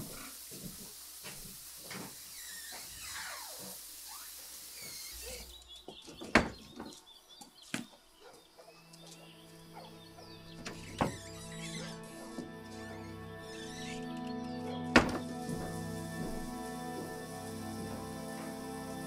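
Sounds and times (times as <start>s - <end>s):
background hiss: 0.0s - 19.0s
birds chirping: 2.3s - 19.0s
music: 8.2s - 19.0s.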